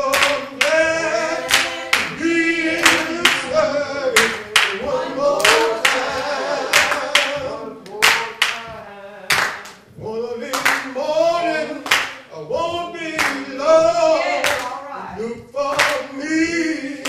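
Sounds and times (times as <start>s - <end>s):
person singing worship song: 0.0s - 17.0s
hands clapping: 0.1s - 0.8s, 1.4s - 2.2s, 2.8s - 3.6s, 4.2s - 4.8s, 5.4s - 8.7s, 9.3s - 9.8s, 10.5s - 10.9s, 11.8s - 12.2s, 13.2s - 13.4s, 14.4s - 14.8s, 15.7s - 16.1s.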